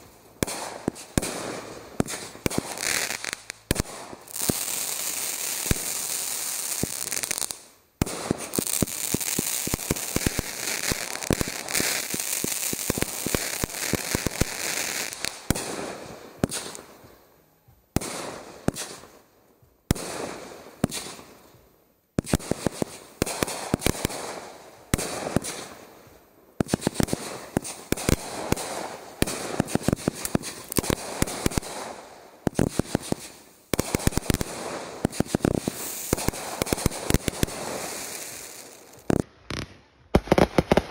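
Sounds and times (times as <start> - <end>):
fireworks hissing: 0.0 - 16.9, 26.6 - 40.9
fireworks popping: 0.0 - 16.9, 22.2 - 25.9, 26.6 - 40.9
fireworks crackling: 0.0 - 17.2, 17.9 - 19.3, 19.9 - 40.9.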